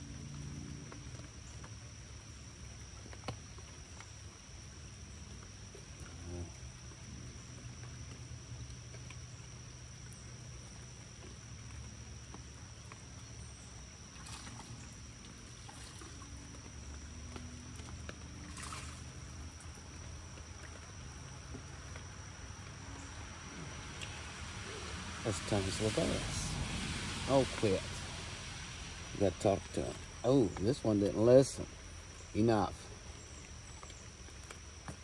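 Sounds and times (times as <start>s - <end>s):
rain: 0.0s - 35.0s
water splashes: 0.0s - 35.0s
steady low rumble: 22.6s - 33.2s.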